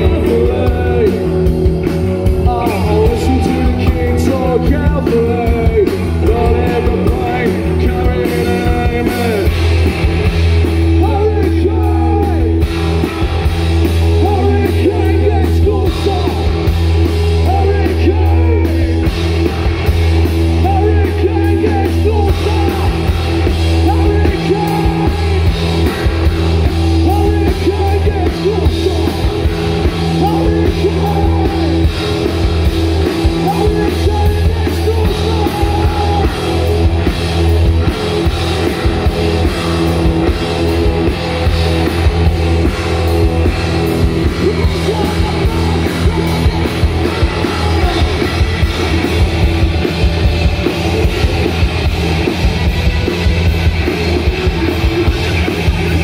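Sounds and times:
man singing lead vocal: 0.0 - 1.6, 2.3 - 9.6, 11.0 - 12.6, 14.2 - 16.6, 17.4 - 19.1, 20.6 - 25.5, 27.0 - 32.3, 33.0 - 36.8, 44.2 - 49.6
drum kit: 0.0 - 56.0
electric bass: 0.0 - 56.0
electric guitar: 0.0 - 56.0.

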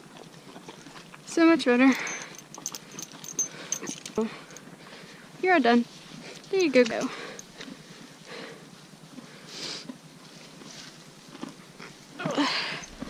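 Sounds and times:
horse vocal sound: 11.5 - 13.0.

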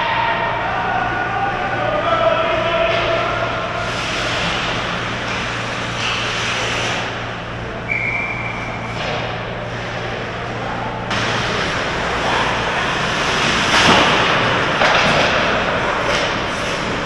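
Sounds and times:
hockey sticks clattering: 2.8 - 7.2, 8.4 - 17.0
skates scraping ice: 2.9 - 7.3, 8.4 - 17.0
referee whistle: 7.9 - 8.8.

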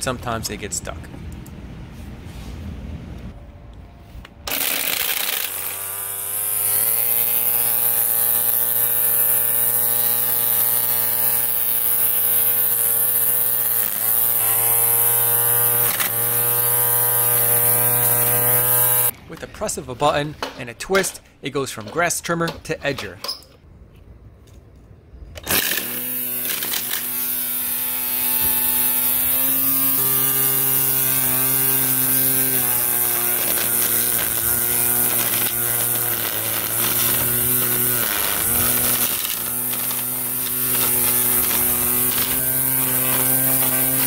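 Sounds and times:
string trimmer motor running: 4.5 - 19.1, 25.4 - 44.0
trimmer line cutting grass: 4.5 - 19.2, 25.4 - 44.0.

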